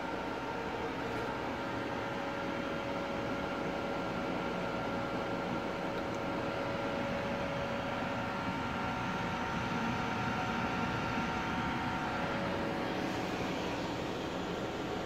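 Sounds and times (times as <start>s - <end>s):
cooling fans whirring: 0.0s - 15.0s
faint whining tones: 0.1s - 15.0s.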